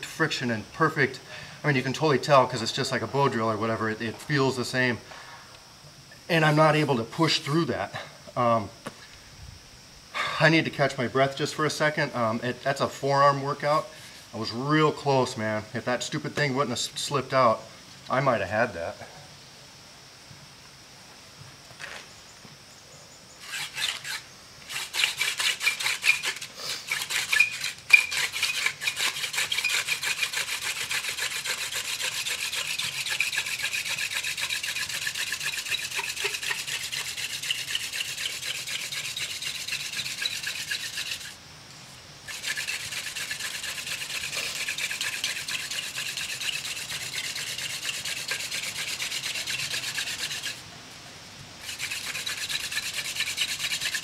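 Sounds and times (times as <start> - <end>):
wooden spindle rasping in fireboard: 23.4 - 41.4, 42.3 - 50.6, 51.6 - 54.0.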